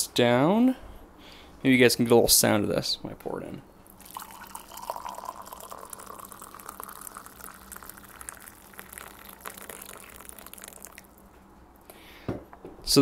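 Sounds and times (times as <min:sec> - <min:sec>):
coffee pouring into cup: 0:03.9 - 0:11.3.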